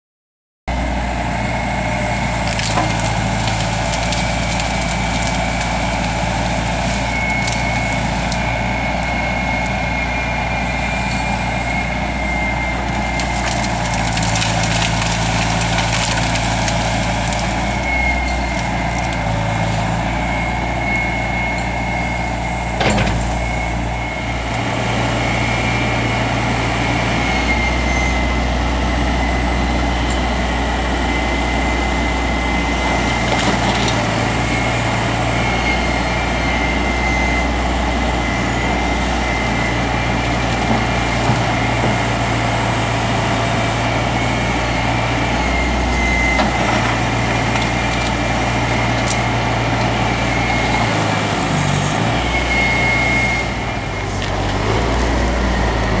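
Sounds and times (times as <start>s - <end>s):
diesel engine running: 0.7s - 56.0s
brush snapping and crackling: 2.4s - 8.4s, 13.1s - 17.7s.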